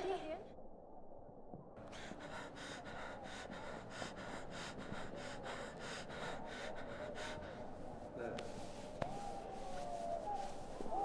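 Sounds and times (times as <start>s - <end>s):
person gasping breaths: 1.8s - 7.9s.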